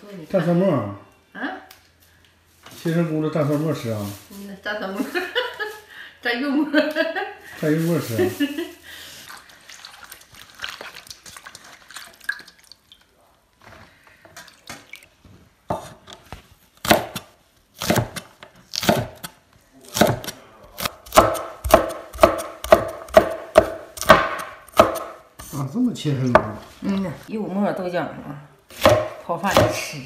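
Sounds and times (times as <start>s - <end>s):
cleaver chopping on wooden board: 16.8s - 19.3s, 20.0s - 25.2s, 28.8s - 29.9s.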